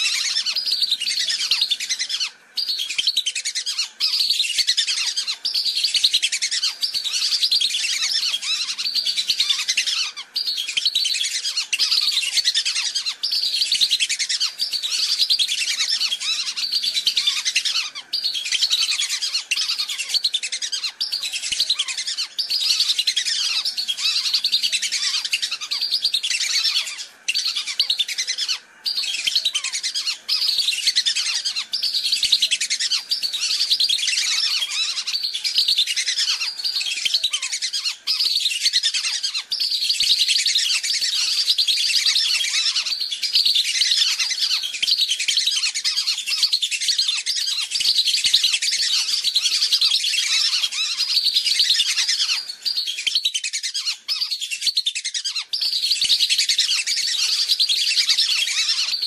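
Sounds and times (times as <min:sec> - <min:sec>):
whistling ducks calling: 0:00.0 - 0:59.0.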